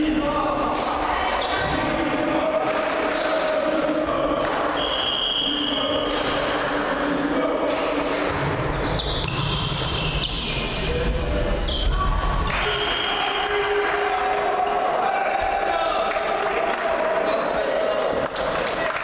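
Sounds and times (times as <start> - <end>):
players and spectators shouting: 10.8 - 19.0.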